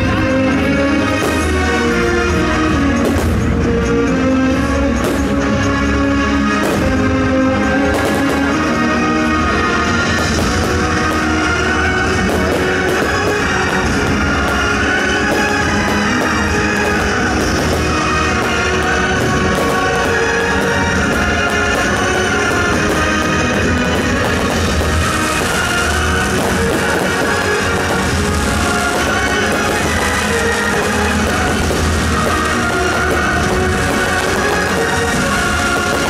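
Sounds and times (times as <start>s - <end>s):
loud rock music: 0.0s - 36.0s.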